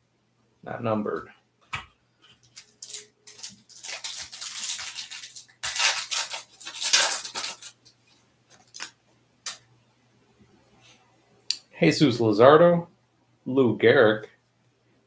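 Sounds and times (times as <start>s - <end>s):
foil wrapper crinkling and tearing: 2.4s - 9.6s.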